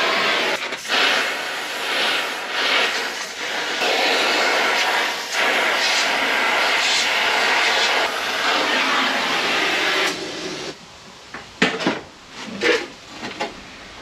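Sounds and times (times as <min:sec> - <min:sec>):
gas torch flame hissing: 0:00.0 - 0:10.8.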